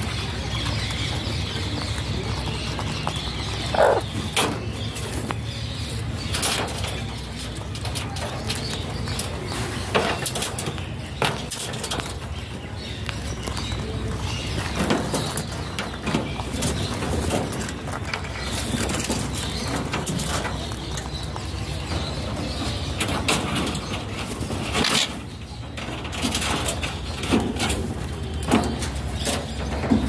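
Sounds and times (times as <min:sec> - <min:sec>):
parakeet calls and clicks: 0:00.0 - 0:05.8.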